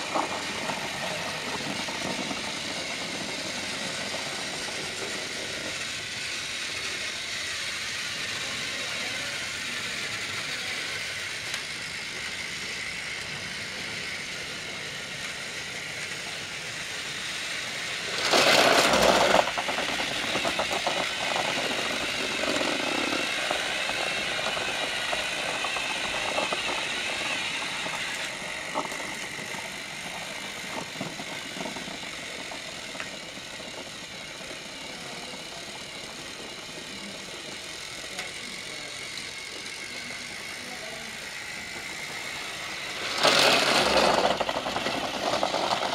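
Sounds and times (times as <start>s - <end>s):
loud clatter: 0.0s - 7.0s, 17.7s - 45.9s
toy trains whirring: 0.0s - 45.9s.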